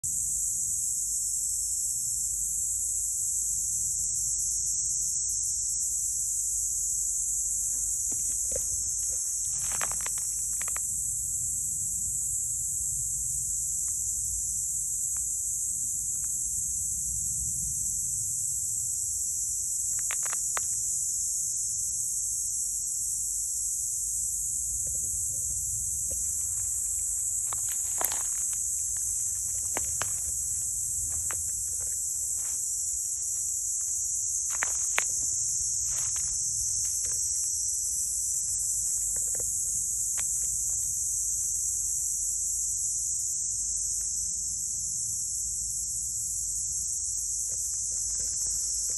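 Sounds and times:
insects droning: 0.0 - 48.9
soft clicks and rustles: 8.4 - 10.9.

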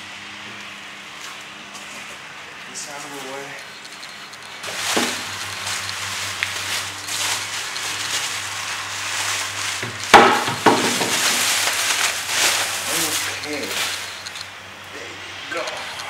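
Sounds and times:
plastic wrapping rustling: 2.8 - 14.6
sharp knocks: 9.8 - 11.3.

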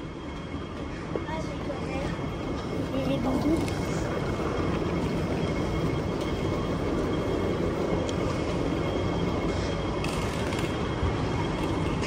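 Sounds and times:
faint high whine: 0.0 - 12.0
moving walkway rumbling: 0.0 - 12.0.

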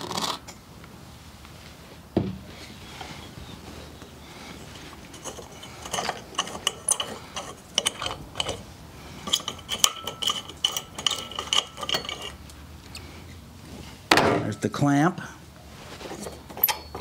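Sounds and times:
metal clamp screw clicking and grating: 5.1 - 8.6, 9.2 - 13.0, 16.5 - 17.0
thin squeaky ring: 16.2 - 17.0.

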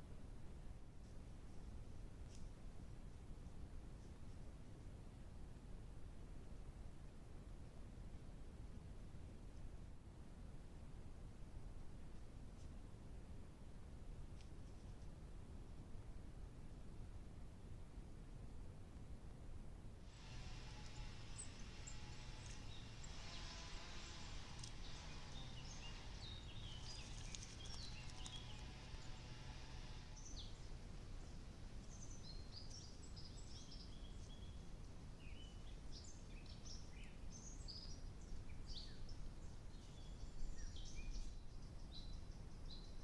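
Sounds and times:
microphone hiss: 0.0 - 43.0
songbirds chirping and trilling: 20.1 - 43.0.

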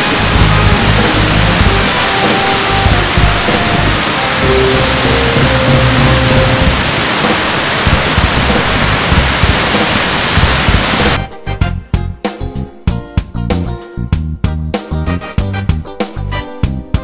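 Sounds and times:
loud rushing noise: 0.0 - 11.2
music with plucked notes and beat: 0.0 - 17.0.

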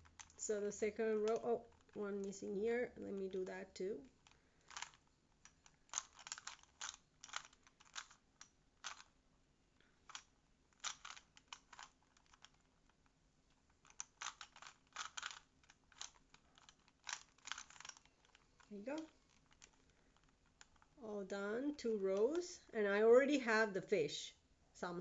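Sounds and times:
puzzle cube clicking: 1.1 - 2.4, 4.2 - 9.2, 10.0 - 21.0.

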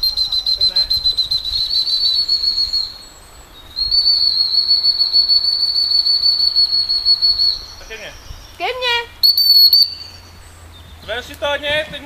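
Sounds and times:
dog whistle trilling blasts: 0.0 - 3.0, 3.7 - 7.7, 9.2 - 10.3.

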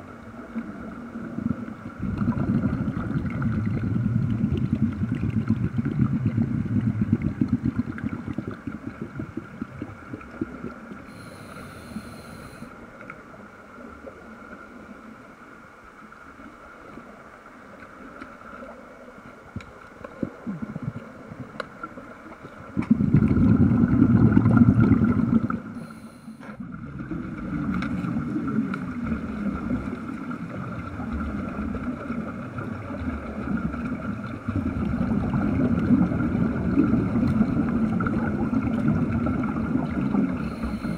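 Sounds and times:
faint steady tone: 0.0 - 23.6, 24.4 - 40.9
air bubbling underwater: 1.3 - 11.0, 22.7 - 25.9, 26.6 - 40.9.

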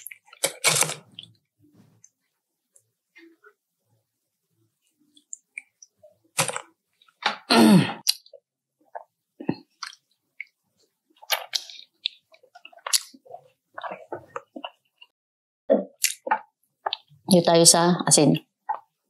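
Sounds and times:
chewing and crunching: 9.7 - 10.6, 11.2 - 15.1, 16.0 - 17.1.

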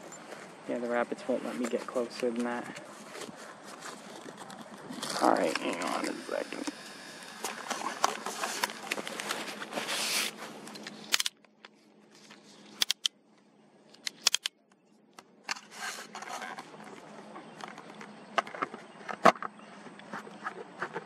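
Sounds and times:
rustling: 0.0 - 12.8, 15.5 - 17.9.

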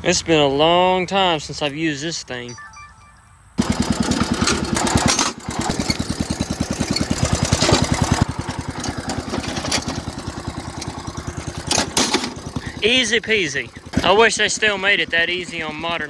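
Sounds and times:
small engine idling: 3.6 - 16.0.

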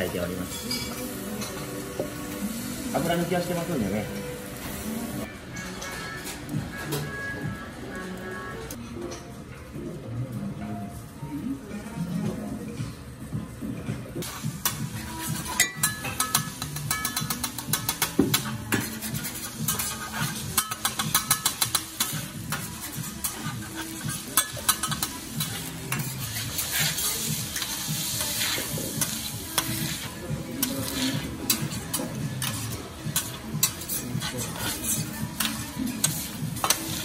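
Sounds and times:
rice sizzling on a hot plate: 14.2 - 37.0
metal spatula scraping a griddle: 14.3 - 37.0.

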